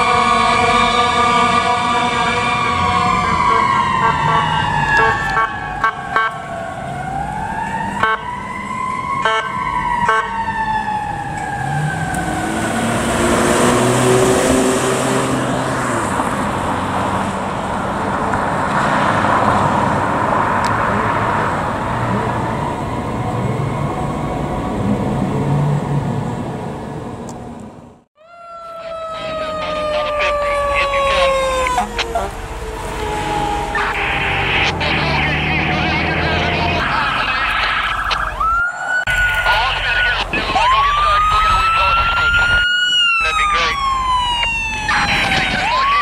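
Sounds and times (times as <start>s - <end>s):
air horn blasts: 0.0s - 6.4s, 8.0s - 8.3s, 9.2s - 10.4s
police siren passing: 0.0s - 27.2s, 28.2s - 46.0s
vehicle engine noise: 0.0s - 28.1s, 28.7s - 46.0s.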